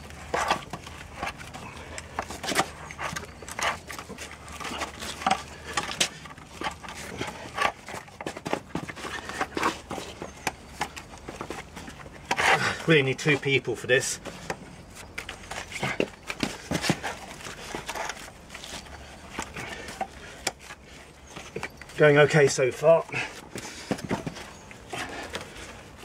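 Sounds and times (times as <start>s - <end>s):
wooden clamp clicking and creaking: 0.0s - 13.0s, 13.9s - 26.0s.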